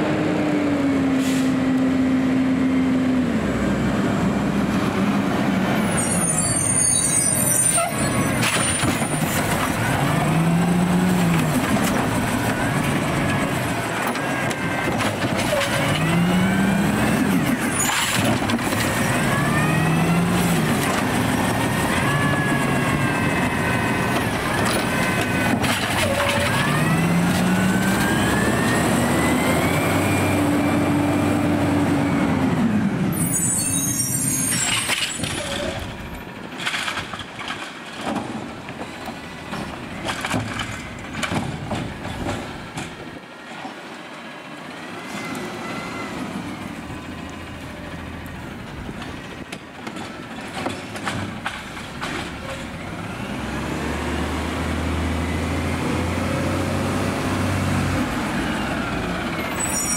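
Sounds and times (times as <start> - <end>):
garbage truck engine revving: 8.0 - 33.1, 50.3 - 59.9.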